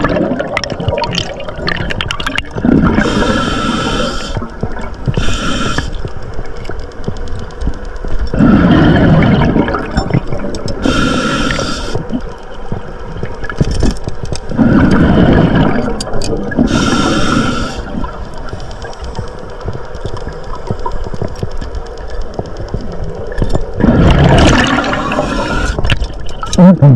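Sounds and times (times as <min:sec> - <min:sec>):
exhaled bubbles gurgling: 0:00.0 - 0:06.5, 0:08.3 - 0:21.5, 0:22.6 - 0:26.9
regulator inhale hissing: 0:03.0 - 0:04.5, 0:05.1 - 0:06.1, 0:10.8 - 0:12.1, 0:16.6 - 0:18.1, 0:24.8 - 0:26.0.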